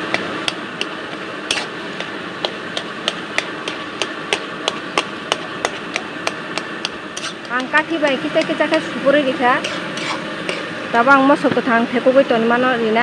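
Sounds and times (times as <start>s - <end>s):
pan sizzling: 0.0s - 11.8s.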